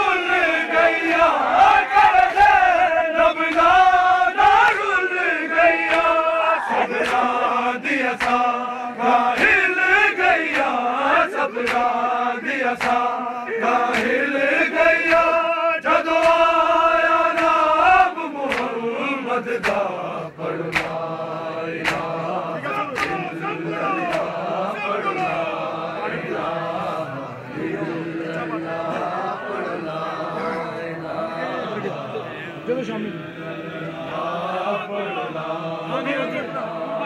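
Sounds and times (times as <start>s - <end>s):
men chanting a lament: 0.0s - 37.0s
chest beating slaps: 11.6s - 11.9s, 20.7s - 21.0s, 21.8s - 22.2s, 22.9s - 23.2s.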